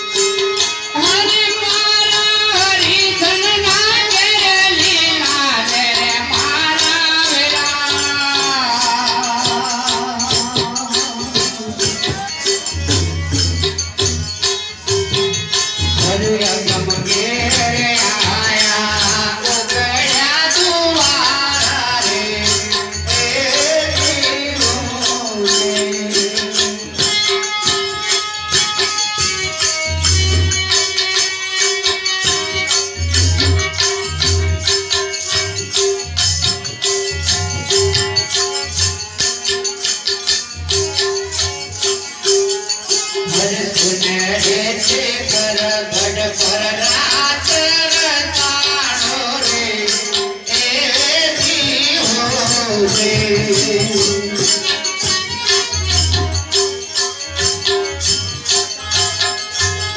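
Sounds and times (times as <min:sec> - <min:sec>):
hand drum: 0:00.0 - 0:59.9
harmonium sustained tones: 0:00.0 - 0:59.9
small hand cymbals: 0:00.0 - 0:59.9
man singing: 0:01.0 - 0:27.9, 0:42.2 - 0:58.0.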